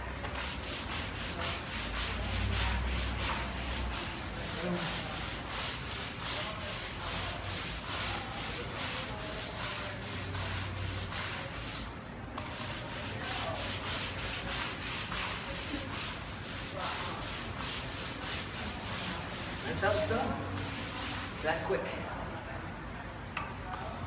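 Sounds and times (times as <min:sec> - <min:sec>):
brush scrubbing stucco wall: 0:00.0 - 0:21.9.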